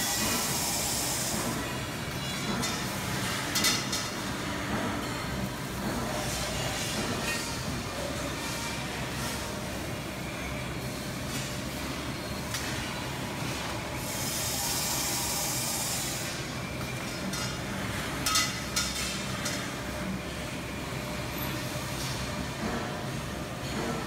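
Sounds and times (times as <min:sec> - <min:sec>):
hiss: 0:00.0 - 0:01.5, 0:14.0 - 0:16.4.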